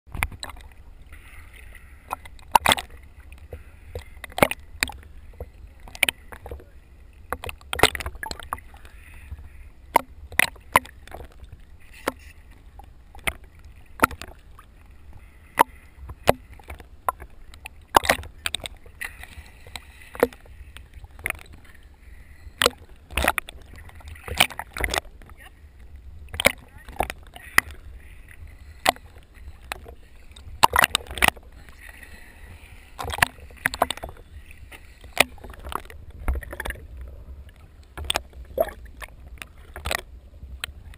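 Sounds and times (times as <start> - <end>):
waves slapping camera housing: 0.1 - 0.8, 1.6 - 6.7, 7.3 - 25.6, 26.2 - 40.9
low rumble of water: 0.1 - 40.9.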